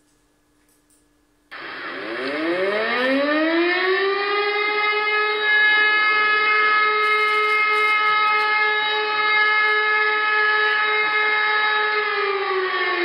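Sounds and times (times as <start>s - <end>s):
fire alarm siren wailing: 1.5s - 13.0s.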